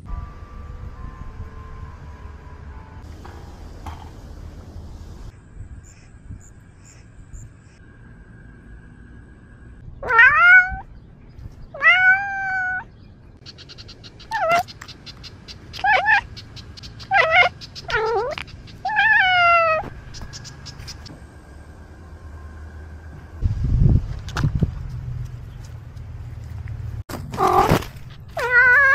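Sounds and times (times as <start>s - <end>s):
cat meowing loudly: 10.0s - 10.8s, 11.8s - 12.9s, 28.4s - 28.9s.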